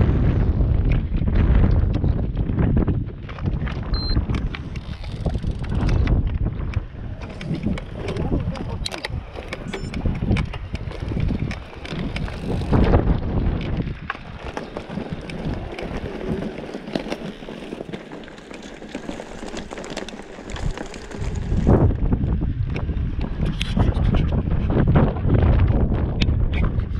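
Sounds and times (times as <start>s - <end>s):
bike rattles and knocks: 0.0s - 26.9s
bike tyres on dirt track: 0.0s - 26.9s
wind buffeting microphone: 0.0s - 26.9s.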